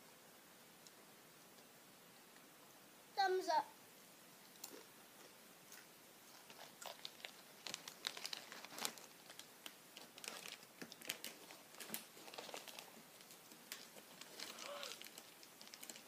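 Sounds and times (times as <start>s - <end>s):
chip being chewed: 4.5s - 9.3s, 10.0s - 16.0s
plastic chip bag crinkling: 6.3s - 16.0s.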